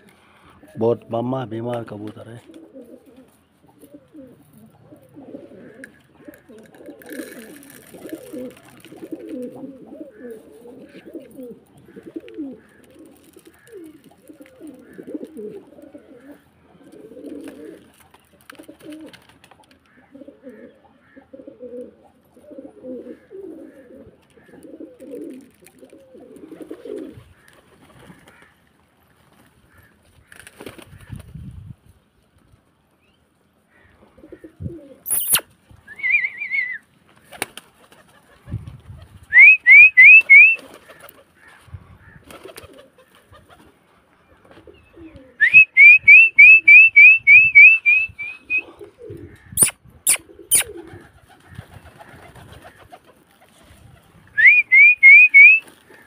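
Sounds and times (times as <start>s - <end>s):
pigeons cooing: 2.4s - 28.5s, 33.7s - 38.6s, 39.3s - 56.0s
sharp click: 35.1s - 35.4s
loud rising whistles: 39.4s - 40.6s, 45.4s - 48.6s, 54.4s - 55.6s.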